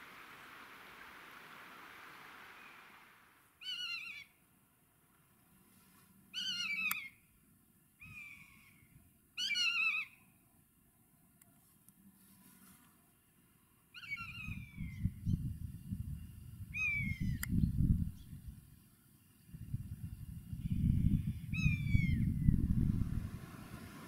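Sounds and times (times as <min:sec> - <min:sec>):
steady hiss: 0:00.0 - 0:03.8, 0:14.7 - 0:24.0.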